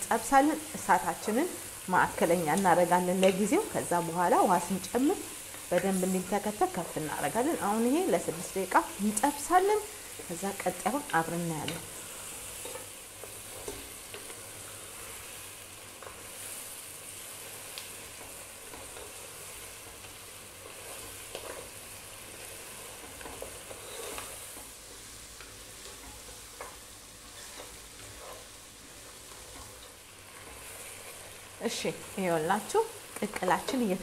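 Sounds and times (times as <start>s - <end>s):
meat and onions sizzling: 0.0s - 34.0s
wooden spatula scraping pot: 23.0s - 24.5s, 27.3s - 28.6s.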